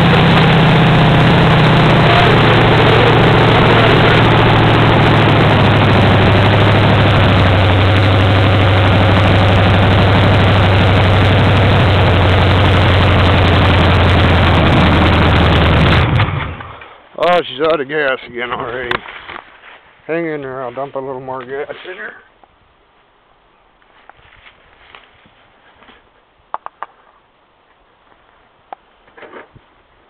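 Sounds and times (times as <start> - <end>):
car engine running loud: 0.0 - 16.7.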